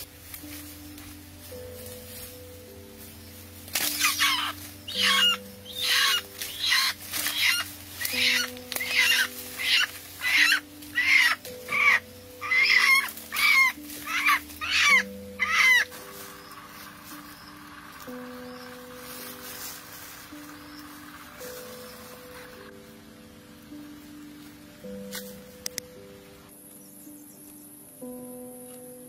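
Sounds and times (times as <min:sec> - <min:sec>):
soft background music: 0:00.0 - 0:29.0
rooster squawking: 0:04.0 - 0:16.0.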